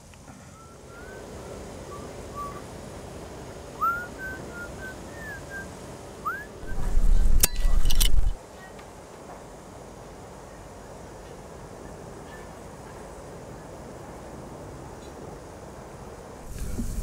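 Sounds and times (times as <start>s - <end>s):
faint outdoor background noise: 0.0s - 17.0s
sharp clicks: 6.6s - 8.4s.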